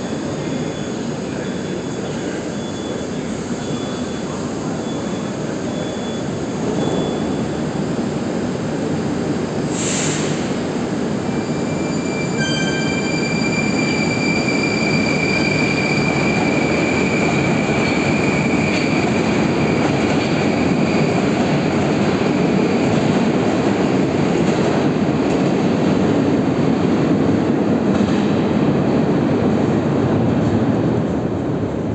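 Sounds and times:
train wheels rumbling on rails: 0:00.0 - 0:31.9
train air hiss: 0:09.6 - 0:10.8.

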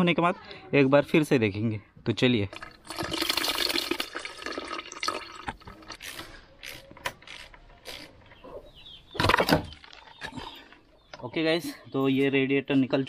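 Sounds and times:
coolant dripping into plastic bucket: 0:02.6 - 0:05.8.

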